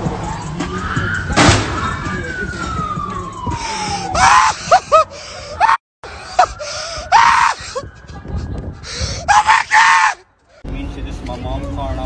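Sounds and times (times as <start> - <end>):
person screaming: 4.1 - 5.0, 5.6 - 5.8, 6.4 - 7.6, 9.2 - 10.2.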